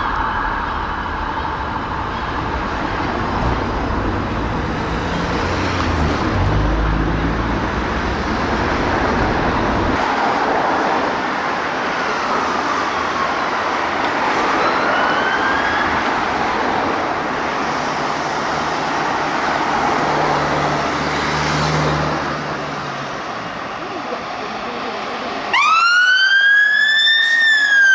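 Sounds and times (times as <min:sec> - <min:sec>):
fire engine siren wailing: 0:00.0 - 0:07.3, 0:11.0 - 0:20.5, 0:23.7 - 0:27.9
heavy vehicle engine rumble: 0:00.0 - 0:25.6
road traffic noise: 0:00.0 - 0:27.9.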